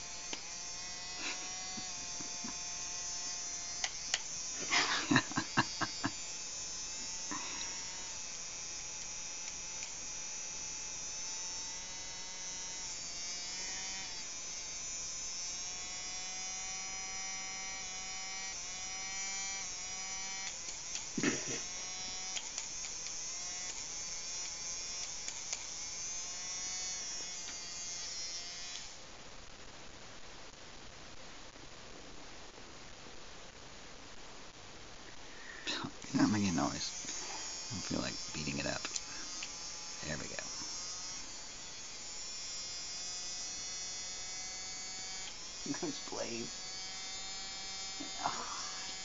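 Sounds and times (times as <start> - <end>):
nail grinder whining: 0.0 - 29.0, 35.4 - 49.0
sharp clicks: 20.4 - 21.2, 22.3 - 25.7.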